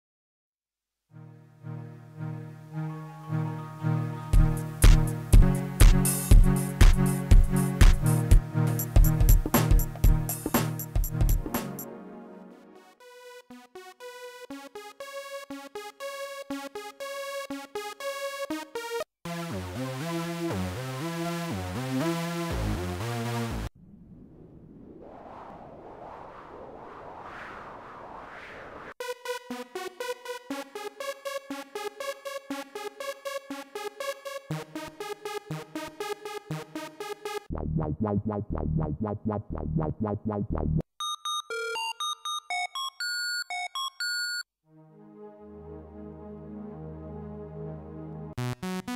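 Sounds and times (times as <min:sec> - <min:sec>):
plucked low synth notes: 0:37.5 - 0:40.8.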